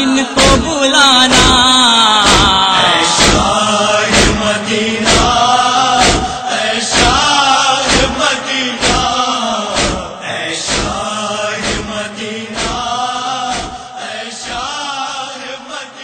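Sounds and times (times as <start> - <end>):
man chanting a lament: 0.0 - 16.0
sharp beat: 1.3 - 8.2, 8.8 - 9.2, 9.8 - 10.1, 10.7 - 11.0, 11.6 - 12.0, 12.6 - 12.9, 13.5 - 13.8.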